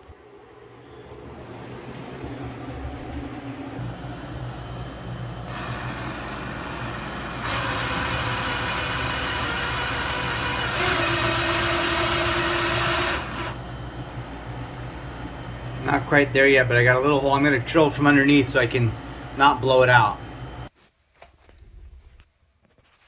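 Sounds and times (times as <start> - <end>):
drill motor whine: 0.8 - 14.1
hole saw cutting wood: 5.5 - 13.6.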